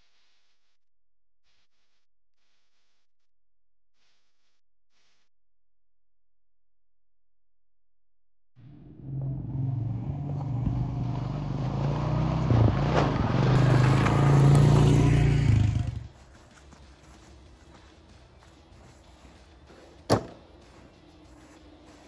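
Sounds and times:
quad bike engine running: 8.8s - 16.2s.

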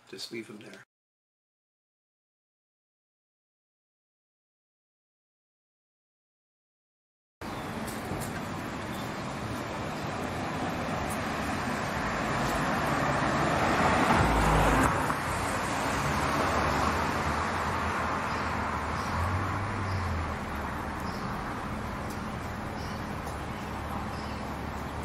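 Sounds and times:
hum of town traffic: 7.4s - 25.0s
car driving past: 10.4s - 24.7s.

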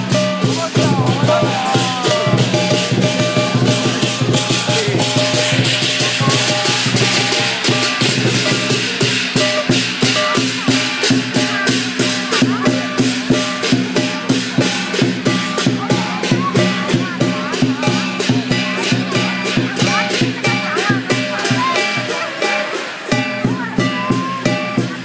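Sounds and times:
drum beaten fast: 0.0s - 25.0s
hand cymbals crashing: 0.0s - 25.0s.

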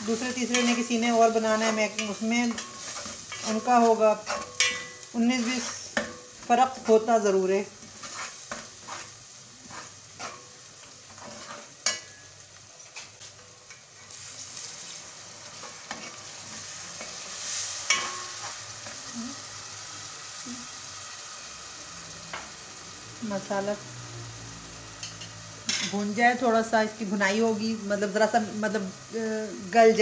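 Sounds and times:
food sizzling in oil: 0.0s - 30.0s
spoon scraping a pot: 0.2s - 7.1s, 7.8s - 12.3s, 15.6s - 19.0s.

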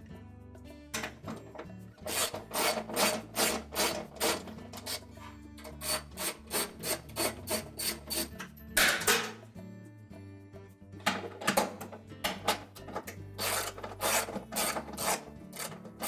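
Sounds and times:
ratchet strokes: 2.0s - 8.4s, 13.4s - 16.0s.

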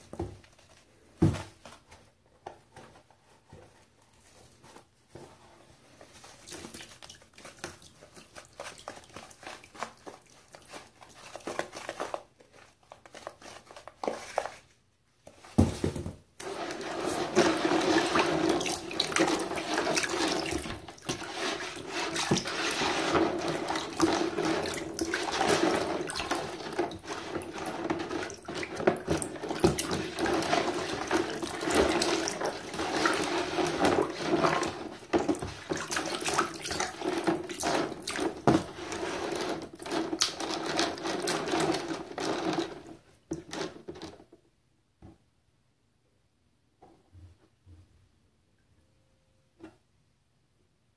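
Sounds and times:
tap water running into basin: 16.4s - 42.9s.

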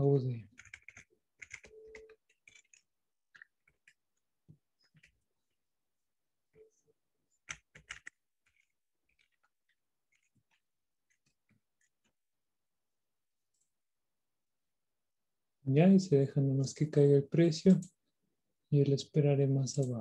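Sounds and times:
computer keyboard keystrokes: 0.6s - 4.0s, 7.4s - 9.5s.

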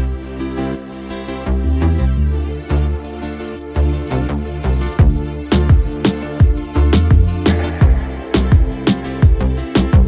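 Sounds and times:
upbeat background music: 0.0s - 10.0s
deep drum hits: 7.5s - 9.5s.

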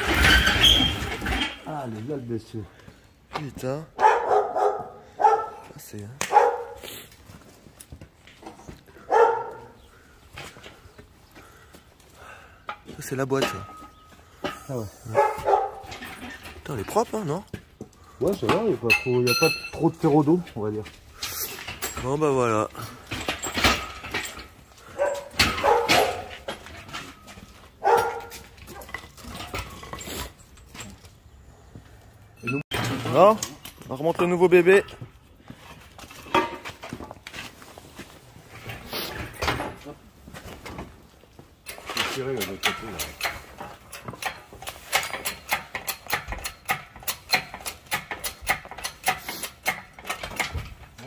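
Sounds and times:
dog barking: 4.0s - 5.7s, 6.3s - 6.8s, 9.1s - 9.8s, 15.1s - 15.9s, 24.9s - 26.3s, 27.8s - 28.4s.

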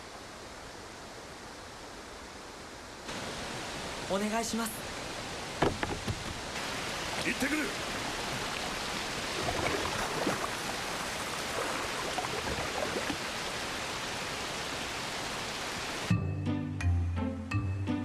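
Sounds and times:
waterfall rushing: 3.1s - 16.1s
music with low sustained notes: 16.1s - 18.0s.

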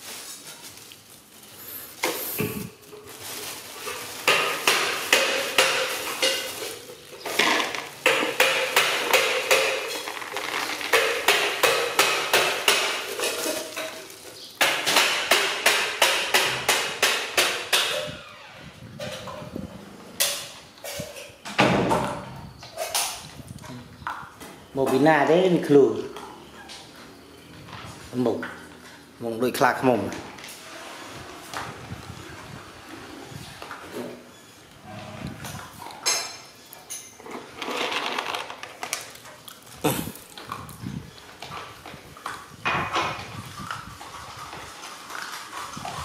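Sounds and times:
plastic bag crinkling: 0.0s - 11.8s, 13.0s - 14.6s
puppies crunching dry kibble: 0.0s - 15.2s, 35.4s - 46.0s
kibble rattling into bowl: 37.0s - 39.6s.

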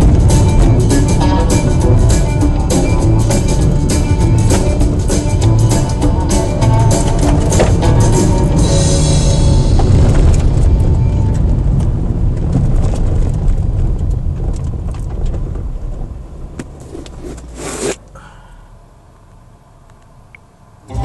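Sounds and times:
tyres rumbling on gravel: 0.0s - 18.2s
short loud scrape: 16.8s - 18.0s.

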